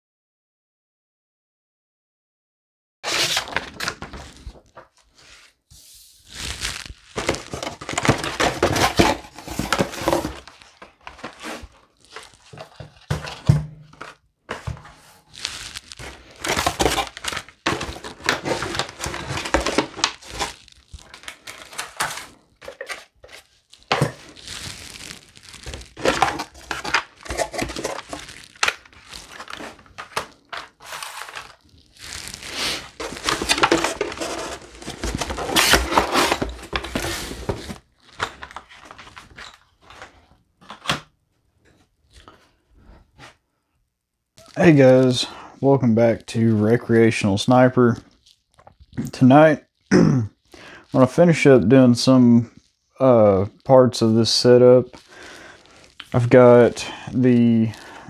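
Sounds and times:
plastic packaging crinkling: 6.2 - 40.9, 54.4 - 58.0.

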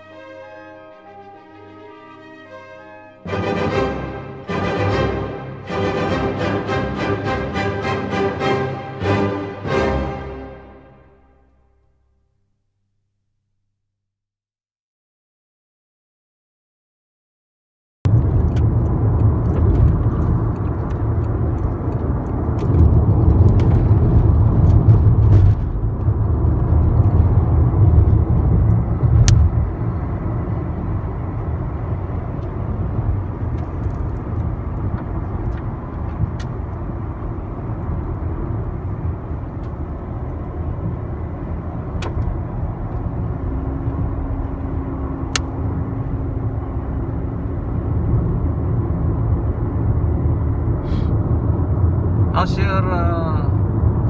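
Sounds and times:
car road noise rumble: 18.1 - 54.0.

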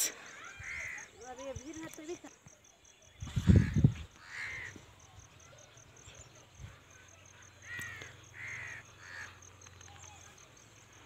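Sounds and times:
crow cawing: 0.2 - 1.2, 3.5 - 4.8, 7.4 - 9.5.

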